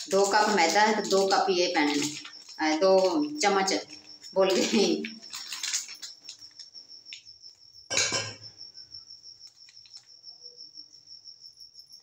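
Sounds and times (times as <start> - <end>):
paper packet rustling: 0.0 - 6.8, 9.4 - 10.1.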